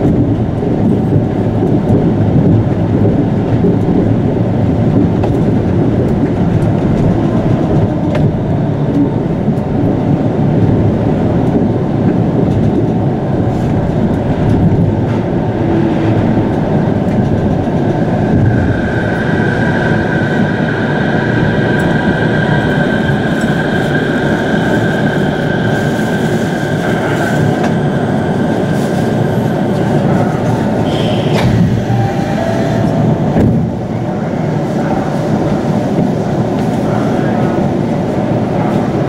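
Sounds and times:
monorail car clunk: 0.0 - 39.0
monorail car running: 0.0 - 39.0
high whine: 30.8 - 34.0.

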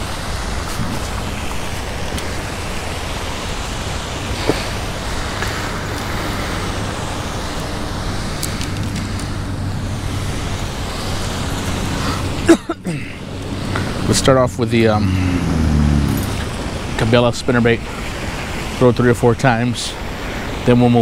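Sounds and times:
road traffic rumble: 0.0 - 21.0
low hum: 14.8 - 17.1.

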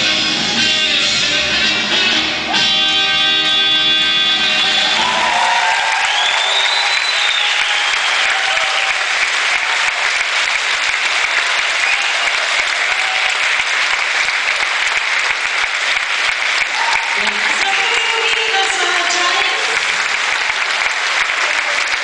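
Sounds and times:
dance music: 0.0 - 6.0, 16.8 - 20.1
audience applauding and cheering: 0.0 - 22.0.

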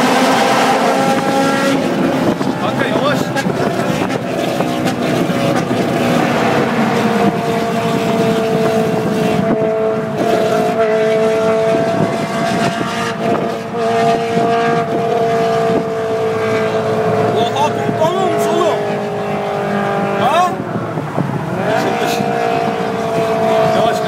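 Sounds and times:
car engine and road noise: 0.0 - 24.0.

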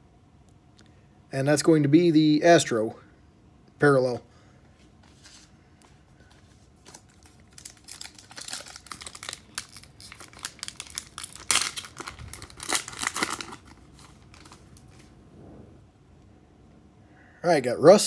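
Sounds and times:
foil wrapper tearing and crinkling: 6.9 - 15.0.

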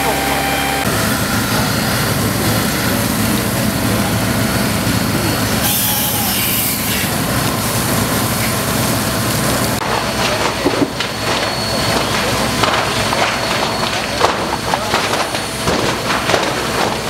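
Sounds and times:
pump engine running: 0.0 - 17.0
hiss of water jets: 5.6 - 9.4.

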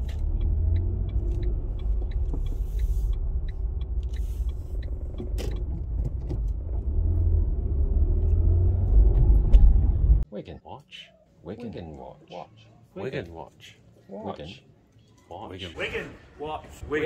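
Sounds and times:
car engine and road rumble: 0.0 - 10.2.

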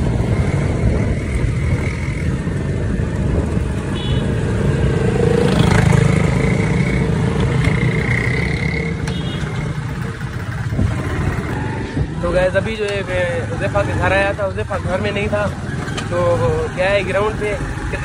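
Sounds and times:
wind rumbling on microphone: 0.0 - 6.4, 10.1 - 12.7
motorcycle engine drone: 0.0 - 18.0.

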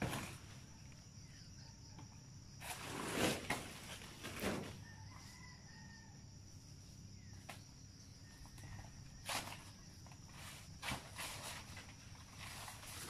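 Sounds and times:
insects droning: 0.0 - 13.0
rooster crowing: 4.7 - 6.5.

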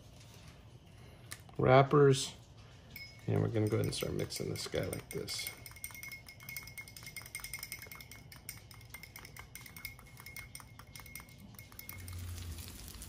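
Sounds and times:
metal spoon clinking in ramekin: 2.9 - 13.0.

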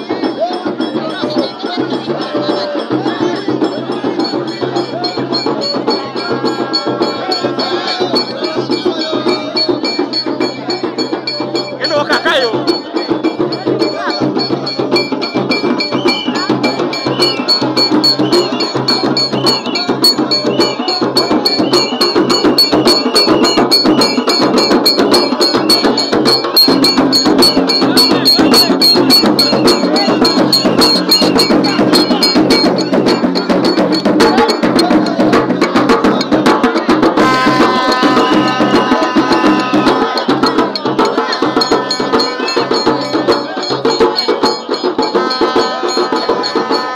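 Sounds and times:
crowd singing: 0.0 - 46.9
frame drums beaten: 0.0 - 46.9
plastic horn blowing: 37.2 - 40.2, 45.2 - 46.9.

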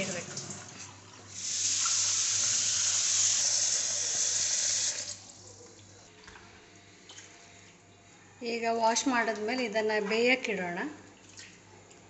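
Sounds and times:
water running: 0.0 - 6.4.

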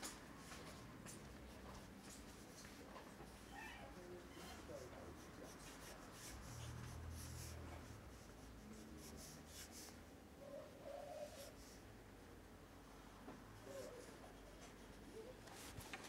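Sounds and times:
pencil scratching on paper: 4.4 - 10.0.

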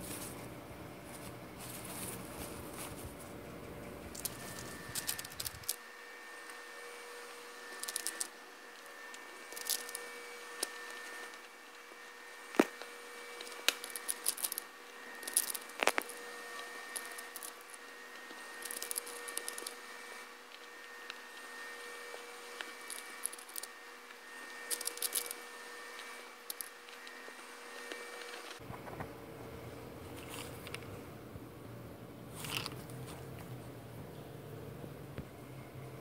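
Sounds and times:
faint steady hum: 0.0 - 36.0
pellets clicking and rattling: 4.1 - 5.8, 7.7 - 28.6, 32.4 - 32.9.

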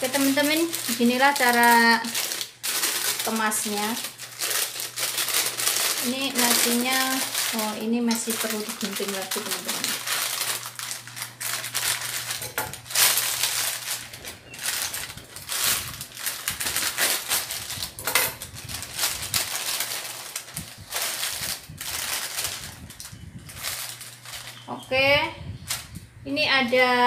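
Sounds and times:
plastic bags crinkling: 0.0 - 24.8
steady low hum: 0.0 - 27.0.

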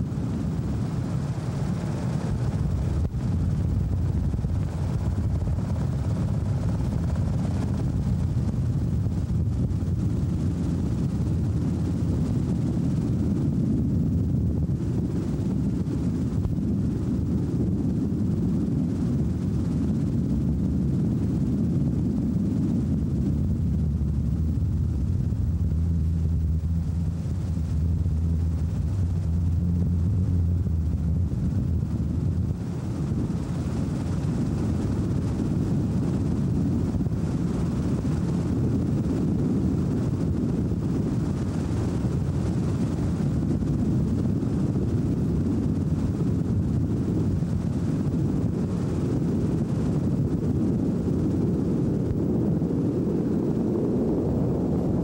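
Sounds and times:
helicopter drone on board: 0.0 - 55.0
steady low hum: 0.0 - 55.0
wind rush: 0.0 - 55.0.

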